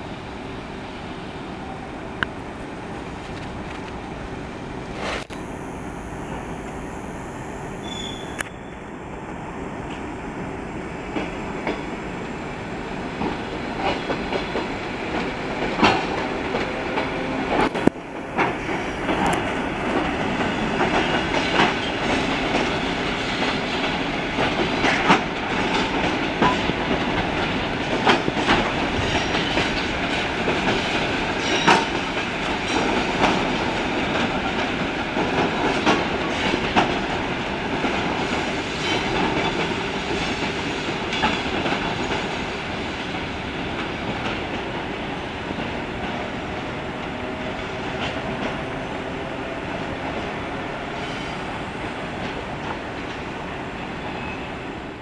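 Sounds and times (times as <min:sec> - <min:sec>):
train rolling rumble: 0:00.0 - 0:55.0
wheels clacking over rail joints: 0:12.9 - 0:53.6.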